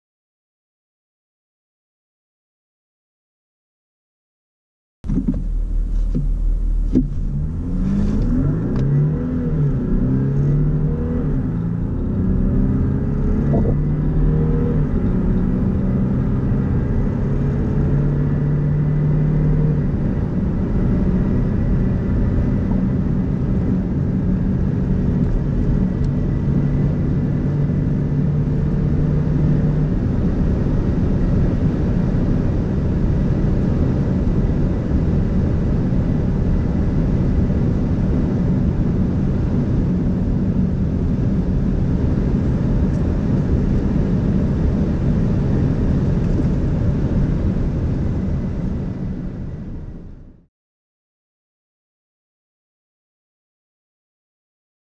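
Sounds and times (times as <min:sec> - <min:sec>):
diesel engine accelerating: 0:05.0 - 0:50.5
road and wind noise: 0:05.0 - 0:50.5.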